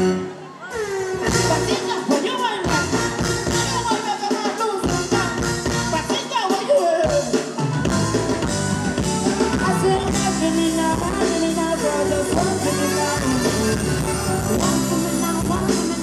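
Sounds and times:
bass guitar: 0:00.0 - 0:00.4, 0:01.0 - 0:04.0, 0:04.8 - 0:06.2, 0:07.0 - 0:16.0
keyboards: 0:00.0 - 0:16.0
woman singing into microphone: 0:00.9 - 0:05.3, 0:09.6 - 0:16.0
drum kit: 0:01.1 - 0:16.0.

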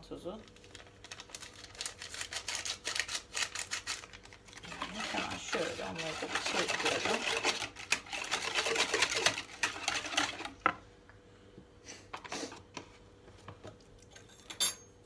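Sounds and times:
whisk beating batter in bowl: 0:04.6 - 0:10.8.

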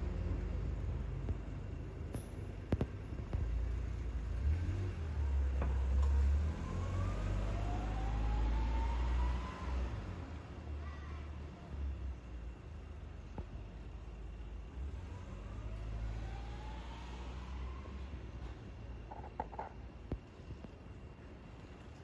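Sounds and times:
traffic rumble: 0:00.0 - 0:22.0
vehicle engine accelerating: 0:03.3 - 0:10.5, 0:14.8 - 0:18.6.

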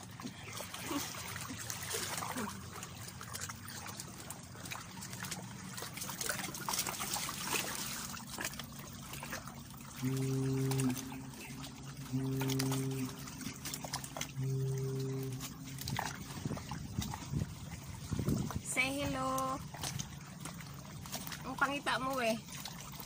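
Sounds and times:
seawater sloshing around rocks: 0:00.0 - 0:23.0
small splashes: 0:00.0 - 0:23.0
steady low tone: 0:08.9 - 0:21.5.

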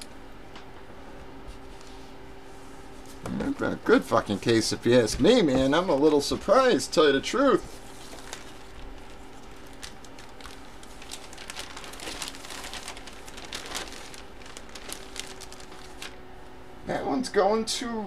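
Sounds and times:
packaging crinkling: 0:07.8 - 0:16.3.

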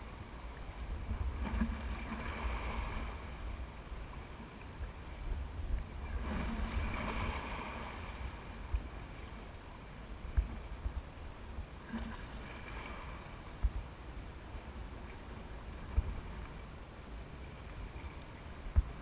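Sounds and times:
wind rumble on microphone: 0:00.0 - 0:19.0
water splashing against rocky shore: 0:06.1 - 0:08.9.

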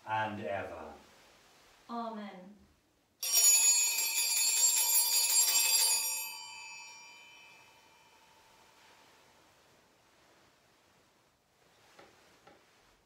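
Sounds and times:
altar bells ringing: 0:03.2 - 0:09.4.

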